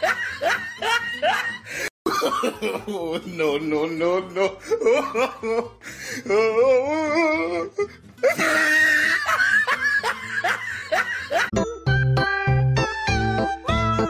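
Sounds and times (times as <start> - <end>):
person laughing: 0.0 - 11.6
giggling: 7.2 - 11.5
music with steady beat: 11.6 - 14.0.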